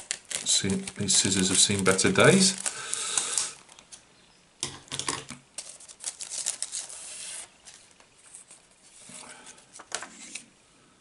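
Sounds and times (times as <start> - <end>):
plastic packet crinkling: 0.0 - 4.0, 5.6 - 8.6.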